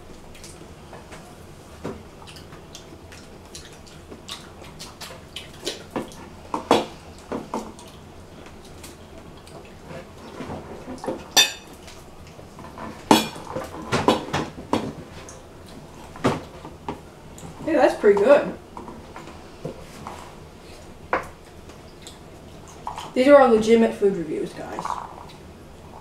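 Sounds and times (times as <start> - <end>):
clinks and taps over plates: 11.1 - 11.8.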